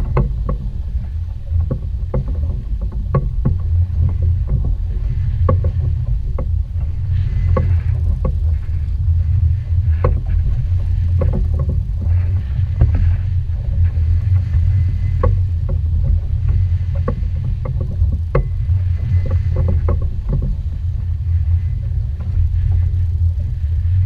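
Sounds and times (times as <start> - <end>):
light knocks and clicks: 0.0 - 8.9
outboard motor rumbling: 0.0 - 24.0.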